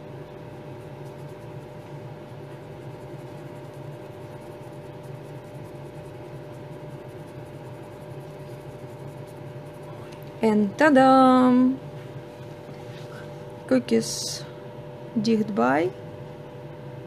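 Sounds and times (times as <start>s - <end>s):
dust extractor fan humming: 0.0s - 17.0s
sponge rubbing on nail: 0.6s - 10.2s.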